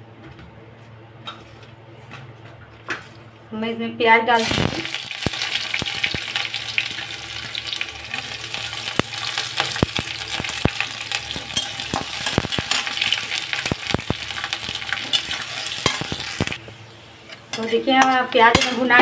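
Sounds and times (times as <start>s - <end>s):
onions sizzling in hot oil: 4.4s - 19.0s.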